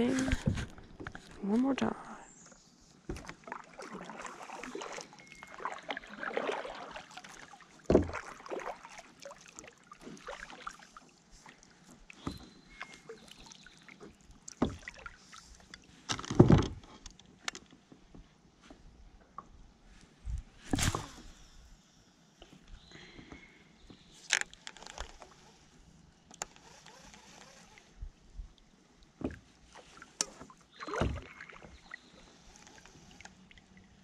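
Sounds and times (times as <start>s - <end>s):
paddle splashing through water: 3.0s - 15.6s, 29.2s - 33.2s
paddle knocks: 7.9s - 8.3s.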